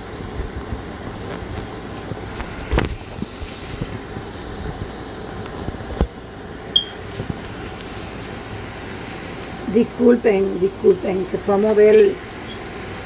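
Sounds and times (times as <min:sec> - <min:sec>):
steady background noise: 0:00.0 - 0:13.0
short high tone: 0:06.8 - 0:07.0.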